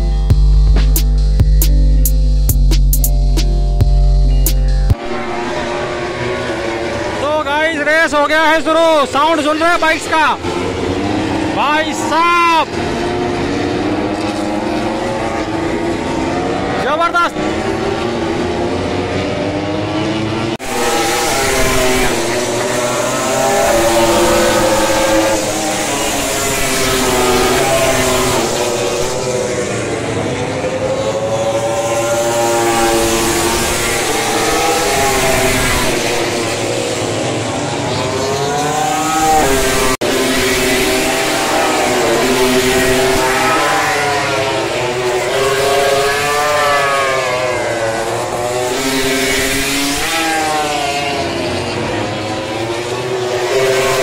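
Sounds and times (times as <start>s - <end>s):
racing motorcycle engines at high revs: 4.8s - 54.0s.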